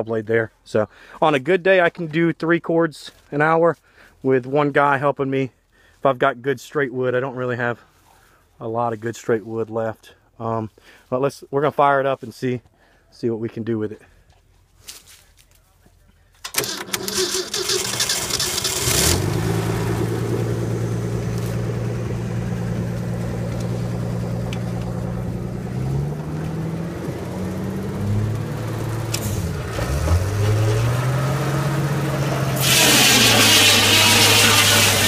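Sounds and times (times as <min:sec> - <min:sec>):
saw blade cutting log: 0:16.6 - 0:19.5, 0:32.3 - 0:35.0
truck engine running: 0:16.6 - 0:35.0.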